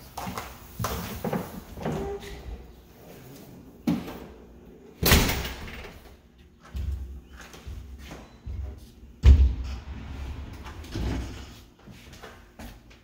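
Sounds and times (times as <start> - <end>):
footsteps on hardwood floor: 0.0 - 2.2, 6.4 - 9.5, 11.7 - 13.0
door shutting: 9.2 - 11.5.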